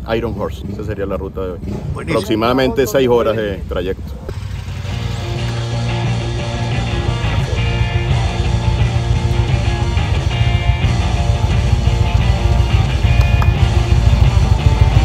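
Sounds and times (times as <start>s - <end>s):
rock music with guitar: 4.3s - 15.0s.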